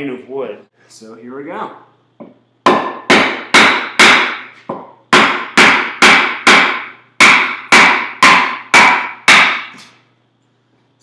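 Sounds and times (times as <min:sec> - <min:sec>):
wooden mallet knocking wedges: 0:02.2 - 0:09.8.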